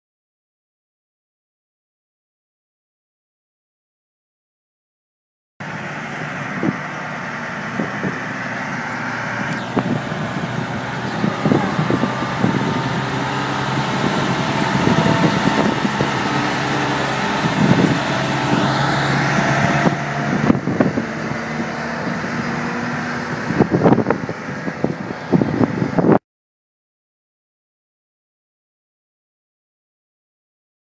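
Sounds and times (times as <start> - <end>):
rising whine: 5.6 - 26.2
tow tractor engine running: 5.6 - 26.2.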